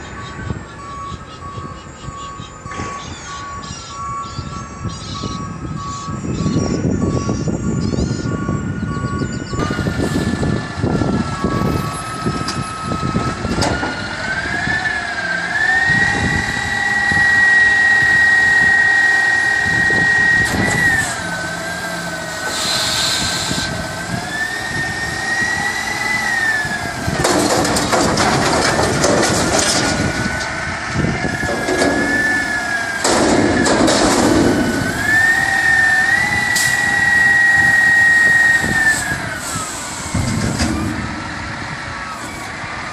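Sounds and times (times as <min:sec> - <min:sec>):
hydraulic whine: 0:02.6 - 0:42.9
diesel engine revving: 0:08.3 - 0:42.9
clatter bursts: 0:27.2 - 0:35.2.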